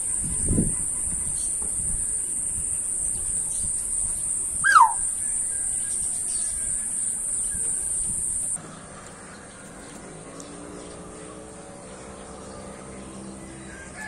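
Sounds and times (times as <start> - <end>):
high-pitched insect drone: 0.0 - 8.6
short bird call sliding downward: 4.6 - 5.1.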